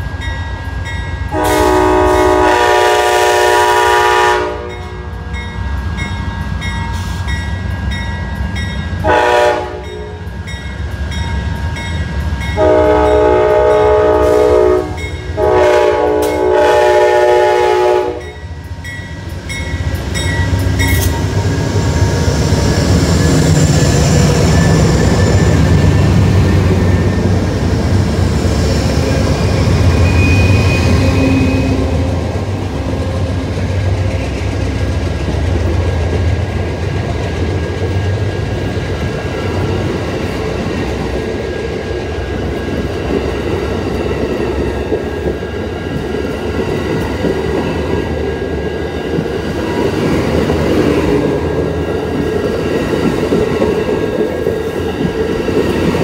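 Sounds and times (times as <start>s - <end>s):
crossing bell ringing: 0.0s - 2.6s, 4.6s - 16.8s, 18.1s - 27.5s, 28.8s - 34.3s
train rumbling past: 0.0s - 56.0s
train horn blasts: 1.3s - 5.2s, 9.0s - 10.3s, 12.5s - 18.4s, 29.0s - 33.7s.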